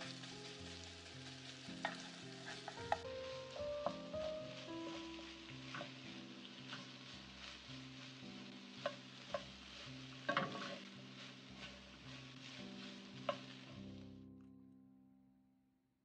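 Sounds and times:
vegetables sizzling in a frying pan: 0:00.0 - 0:14.2
spatula knocking on a pan: 0:01.8 - 0:03.1, 0:03.8 - 0:06.0, 0:10.2 - 0:10.8.

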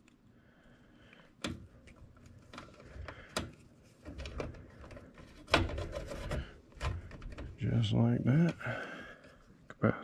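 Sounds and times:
hands handling wires: 0:01.1 - 0:08.6.

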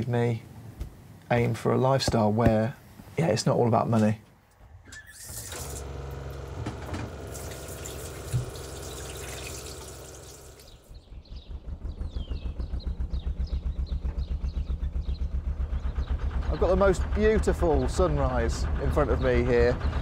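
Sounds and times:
tap water running into sink: 0:05.2 - 0:10.8
low hum: 0:05.4 - 0:20.0
diesel engine idling: 0:05.8 - 0:20.0
birds chirping: 0:07.4 - 0:20.0.

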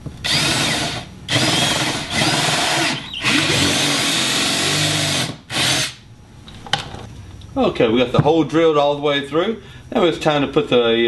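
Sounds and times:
cordless drill boring through wood: 0:00.2 - 0:06.0.

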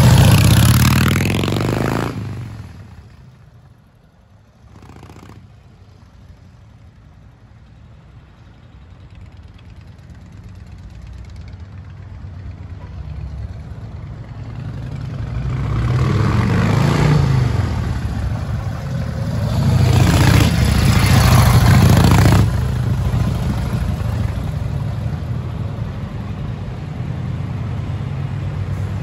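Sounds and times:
motorcycle engine riding past: 0:00.0 - 0:03.2, 0:09.3 - 0:25.6.

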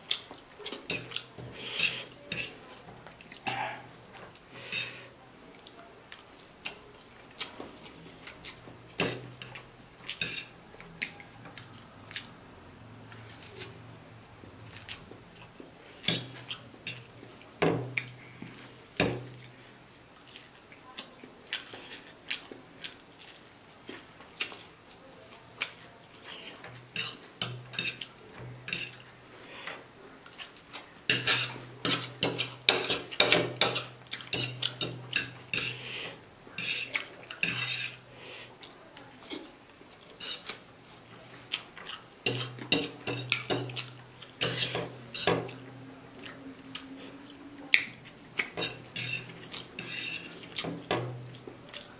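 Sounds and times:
eating sounds: 0:00.0 - 0:08.6, 0:17.9 - 0:28.2, 0:30.1 - 0:44.7, 0:45.4 - 0:51.9
cutlery clinking on ceramic plate: 0:48.6 - 0:50.3.

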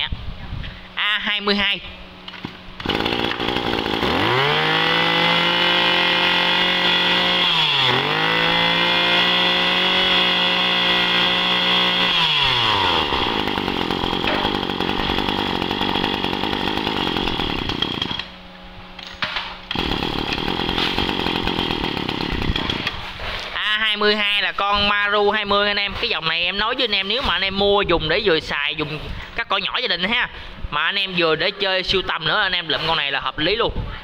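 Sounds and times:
brush-cutter engine revving: 0:02.8 - 0:18.4, 0:19.7 - 0:23.0.

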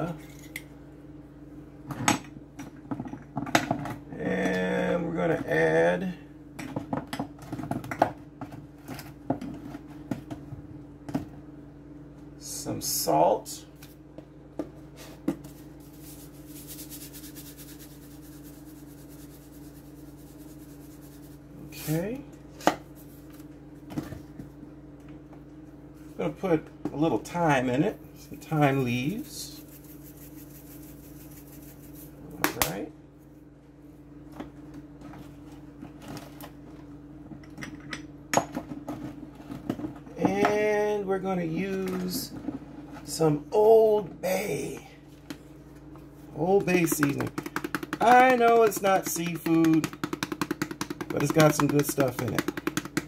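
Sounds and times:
steady low hum: 0:00.0 - 0:53.0
spice containers tapping and clicking: 0:46.6 - 0:53.0.

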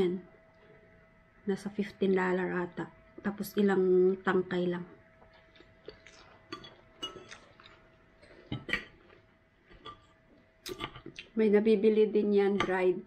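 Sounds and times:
fork clinking on ceramic plate: 0:06.5 - 0:07.5.

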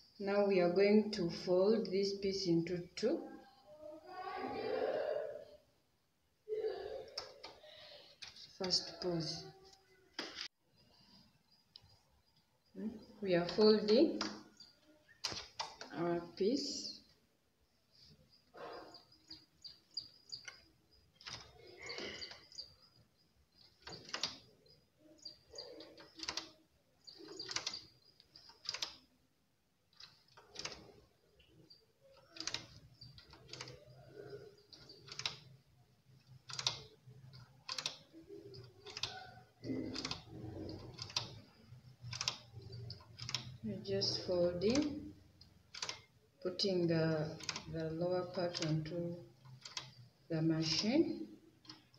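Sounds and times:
knitting machine needles clicking: 0:07.0 - 0:17.2, 0:17.9 - 0:51.9.

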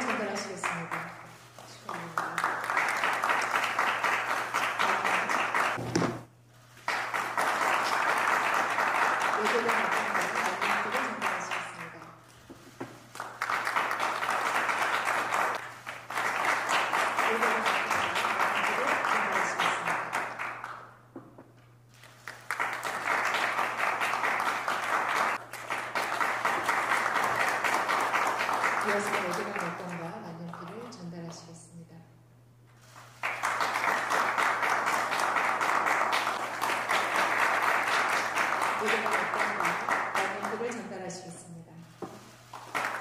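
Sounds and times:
crowd applause: 0:02.0 - 0:05.8, 0:06.8 - 0:11.9, 0:13.1 - 0:20.9, 0:22.0 - 0:29.9, 0:33.2 - 0:40.7, 0:42.6 - 0:43.0.

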